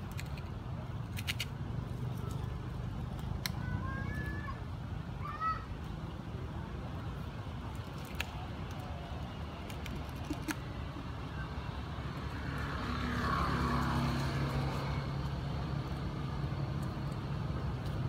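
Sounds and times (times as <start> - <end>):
vehicle engine humming: 5.9 - 18.0.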